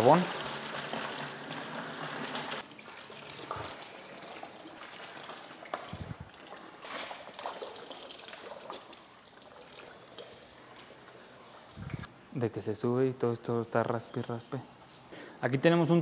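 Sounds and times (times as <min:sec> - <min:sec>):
water pouring into plastic tub: 0:00.0 - 0:12.0.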